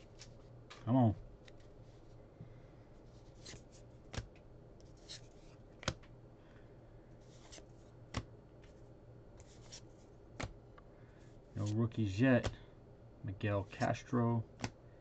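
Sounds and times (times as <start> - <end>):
cards sliding rustles: 0.0 - 0.8, 3.0 - 6.1, 7.2 - 8.8, 9.4 - 10.6, 13.6 - 14.8
sharp card snaps: 5.8 - 6.1, 14.6 - 14.8.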